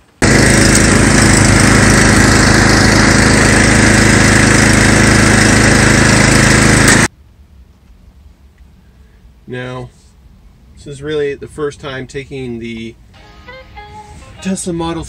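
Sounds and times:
snowblower running: 0.1 - 7.1.

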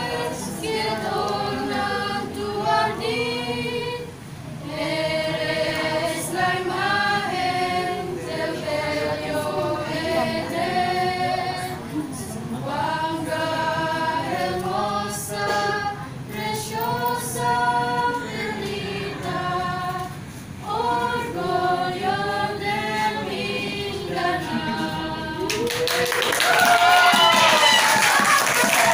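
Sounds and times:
group singing a cappella: 0.0 - 26.2.

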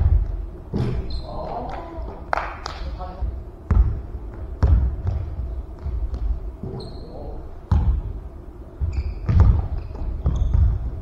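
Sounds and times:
sneakers squeaking: 0.0 - 1.6, 3.7 - 11.0
basketball bouncing on hardwood: 3.7 - 6.3, 7.7 - 8.0, 8.8 - 11.0.

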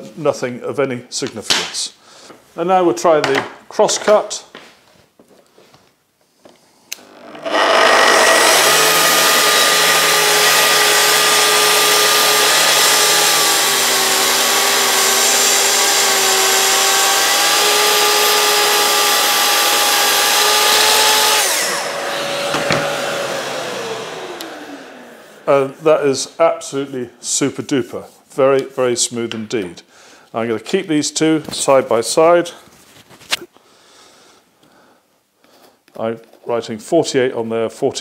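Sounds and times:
saw blade spinning down: 7.0 - 26.4
circular saw cutting wood: 7.0 - 26.9.

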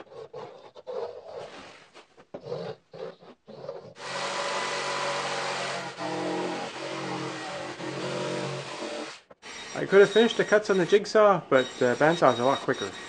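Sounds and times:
pencil scratching on plywood: 0.0 - 4.4
jigsaw cutting plywood: 3.8 - 10.9.

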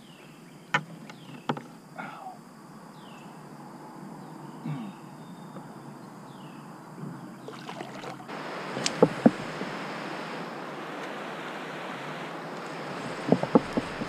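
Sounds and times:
river current rushing: 7.4 - 14.0
sharp knocks: 13.2 - 14.0.

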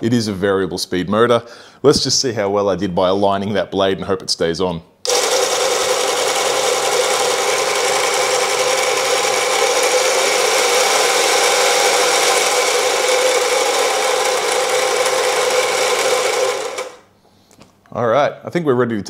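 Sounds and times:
band saw running: 5.1 - 17.0.

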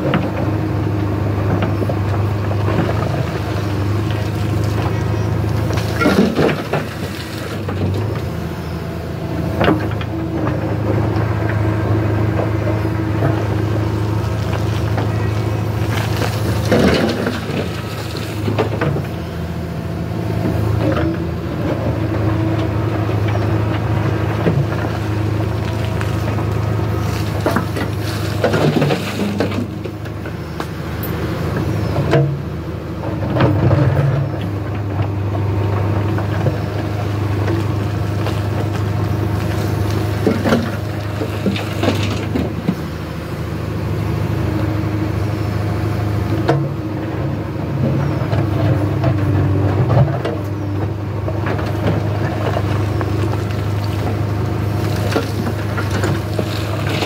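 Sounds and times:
backhoe diesel engine running: 0.0 - 57.0
soil and stones dropping into metal: 4.1 - 8.1, 25.6 - 30.2.

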